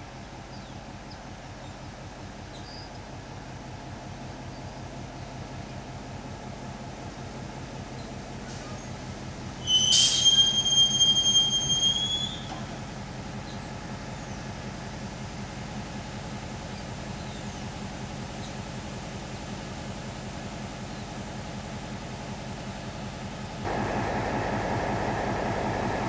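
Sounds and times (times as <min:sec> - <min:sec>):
diesel locomotive engine running low: 0:00.0 - 0:26.0
metallic wheel squeal: 0:09.6 - 0:12.6.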